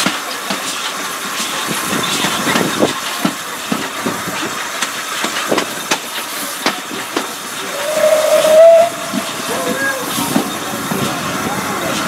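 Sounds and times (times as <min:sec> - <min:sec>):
train wheels clicking over rail joints: 0:00.0 - 0:12.0
steady rushing hiss: 0:03.5 - 0:12.0
steam locomotive whistle: 0:07.7 - 0:10.1.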